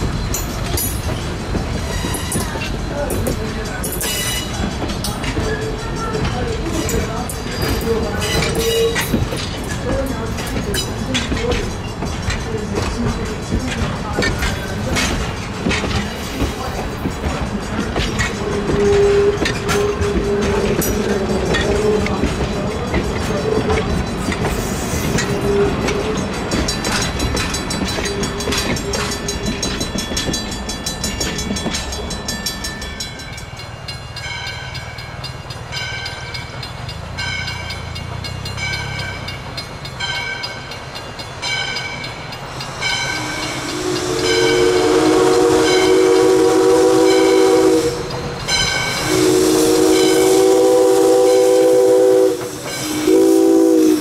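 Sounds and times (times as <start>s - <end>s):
crossing bell dinging: 0.0s - 54.0s
train wheels clicking over rails: 0.0s - 54.0s
steam whistle blasts: 18.6s - 20.1s, 43.1s - 48.1s, 48.9s - 54.0s.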